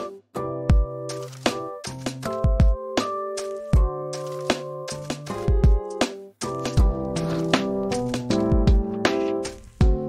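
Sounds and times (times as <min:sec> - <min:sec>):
keyboard chords over drum beat: 0:00.0 - 0:10.0
low kick drum and sharp hits: 0:06.7 - 0:07.0.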